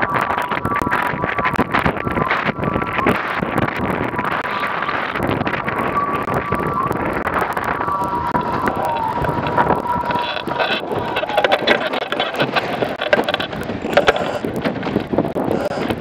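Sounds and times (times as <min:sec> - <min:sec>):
wind buffeting microphone: 0:00.0 - 0:16.0
water rushing past hull: 0:00.1 - 0:16.0
knocks and clatter on boat: 0:07.4 - 0:16.0.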